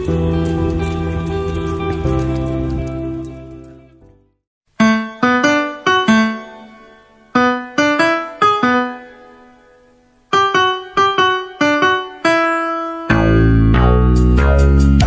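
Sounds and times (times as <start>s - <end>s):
solo piano tune: 4.8s - 14.1s.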